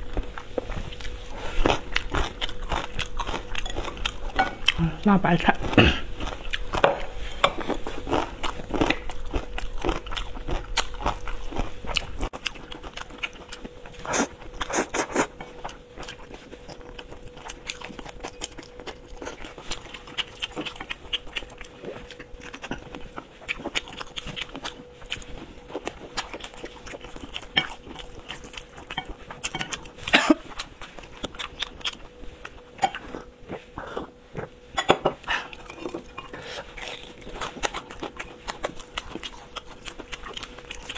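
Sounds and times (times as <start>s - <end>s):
faint steady hum: 0.0s - 40.9s
person chewing food: 0.0s - 40.9s
chopsticks tapping plates: 3.6s - 4.8s, 34.8s - 36.4s.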